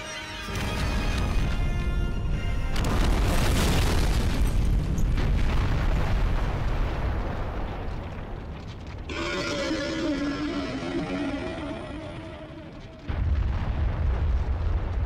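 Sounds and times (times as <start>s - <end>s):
music: 0.0s - 3.5s
explosion with low rumble: 2.8s - 9.2s, 11.7s - 15.0s.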